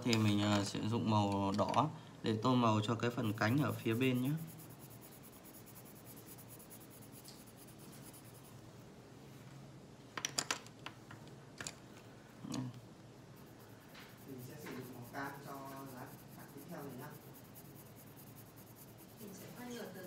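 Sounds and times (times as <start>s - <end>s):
pencil scratching on paper: 3.1s - 8.6s, 13.3s - 20.0s.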